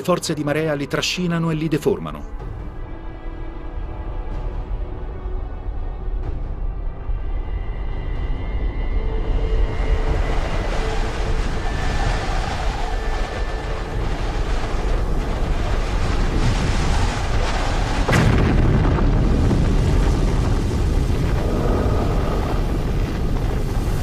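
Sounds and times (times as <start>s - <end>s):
deep rumble: 2.3s - 24.0s
sudden crack: 16.3s - 21.4s.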